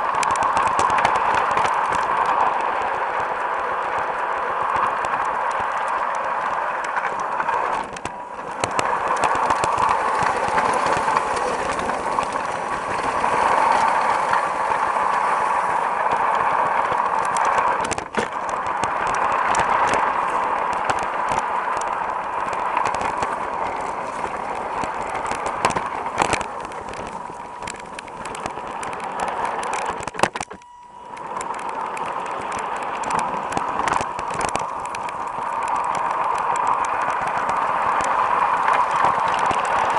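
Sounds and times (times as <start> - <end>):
model train motor whirring: 0.0 - 39.9
wheels clicking over rails: 0.0 - 39.9.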